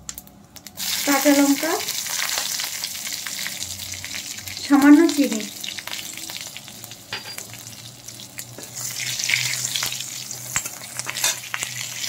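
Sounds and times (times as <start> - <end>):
spices sizzling in hot oil: 0.0 - 12.0
metal spatula scraping a pan: 8.6 - 12.0.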